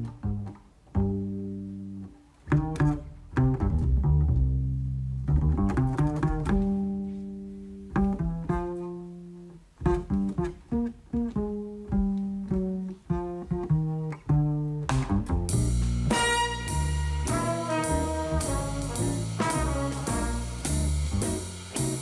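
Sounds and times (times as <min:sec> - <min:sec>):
plucked double bass: 0:00.0 - 0:22.0.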